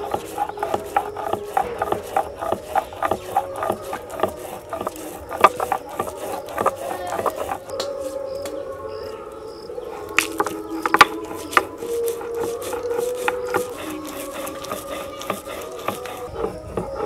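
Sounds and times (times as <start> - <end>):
stone grinding on stone slab: 0.0 - 7.8, 10.1 - 17.0.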